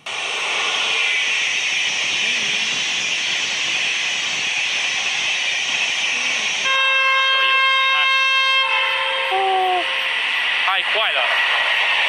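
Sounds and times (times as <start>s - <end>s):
passing train rushing: 0.0s - 12.0s
locomotive horn blast: 6.6s - 10.1s.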